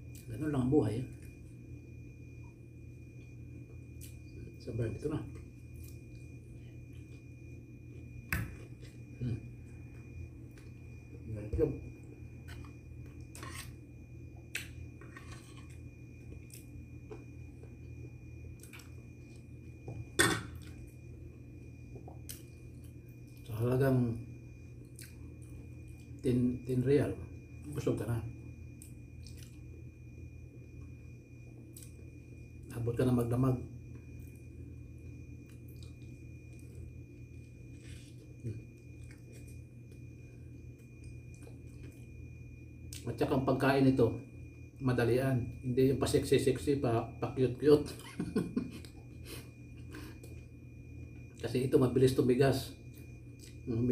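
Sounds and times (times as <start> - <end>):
steady low hum: 0.0 - 53.9
man chewing bread: 35.4 - 40.0.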